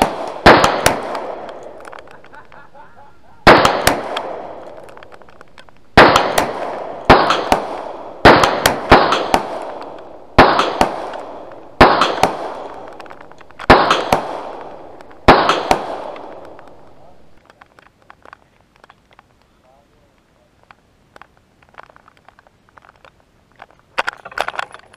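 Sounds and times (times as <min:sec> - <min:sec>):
handgun shots echoing: 0:00.0 - 0:02.1, 0:03.4 - 0:05.2, 0:06.0 - 0:16.8.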